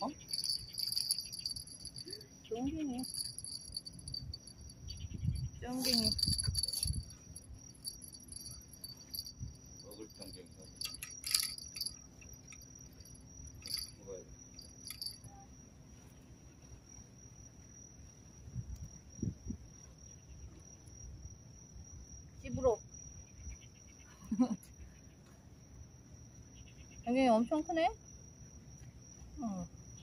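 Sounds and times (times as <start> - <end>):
fishing tackle clinking: 0.0 - 14.0, 14.6 - 15.3
high-pitched insect trill: 0.0 - 30.0.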